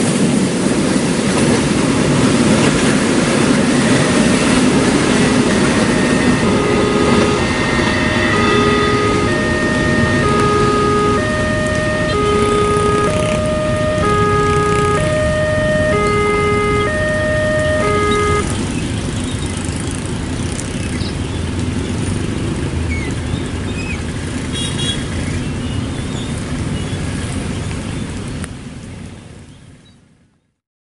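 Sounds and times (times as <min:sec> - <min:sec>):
motorcycles passing: 0:02.6 - 0:22.7
level crossing two-tone alarm: 0:03.8 - 0:18.5
short high beep: 0:05.0 - 0:18.5.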